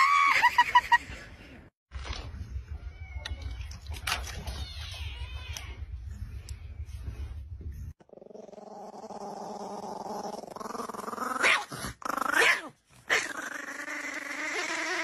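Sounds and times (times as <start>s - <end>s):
puppy growling: 8.0s - 15.0s.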